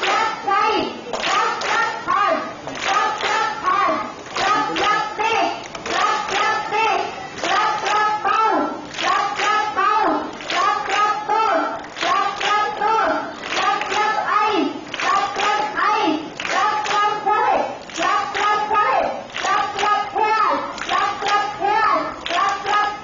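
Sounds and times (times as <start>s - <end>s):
hand claps: 1.1s - 1.9s, 2.7s - 3.5s, 5.6s - 6.7s, 7.4s - 8.1s, 8.9s - 14.2s, 14.8s - 15.7s, 16.3s - 20.1s, 20.7s - 21.5s, 22.2s - 22.8s.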